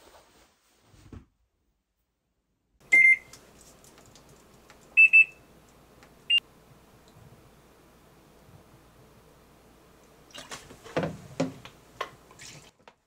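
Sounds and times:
washing machine panel beeps: 2.9 - 3.3, 5.0 - 5.4.

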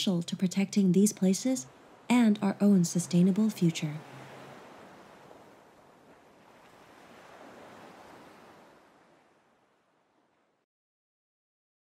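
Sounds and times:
faint sea waves washing on shore: 0.0 - 10.6.

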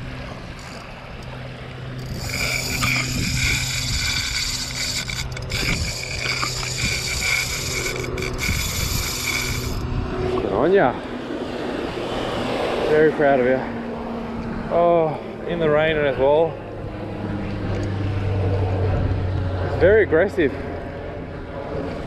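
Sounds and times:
fishing reel whirring: 0.1 - 10.0.

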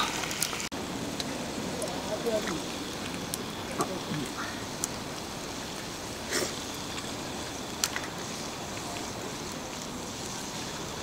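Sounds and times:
fire popping: 0.0 - 11.0
wood fire hissing: 0.0 - 11.0.

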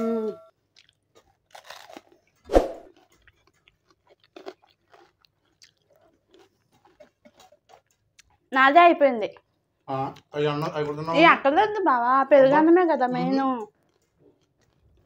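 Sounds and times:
chewing and crunching: 0.6 - 15.0.

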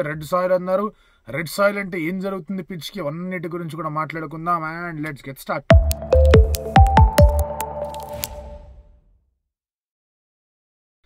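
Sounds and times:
electronic jingle ringing out: 5.7 - 8.8
short click: 7.7 - 8.6.

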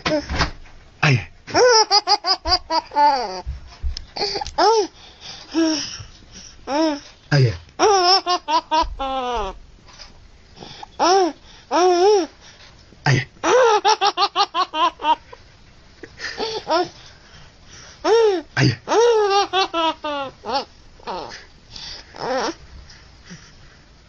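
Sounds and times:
baby laughing: 1.5 - 3.5, 7.8 - 9.6, 13.4 - 15.3, 16.4 - 16.9, 18.0 - 21.4.

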